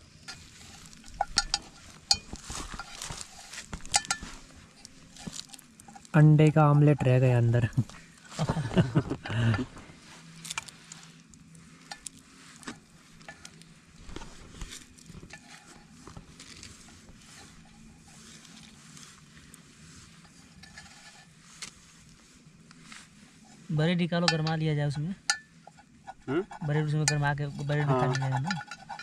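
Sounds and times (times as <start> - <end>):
spoon scraping metal pot: 20.2 - 21.3, 25.2 - 29.0.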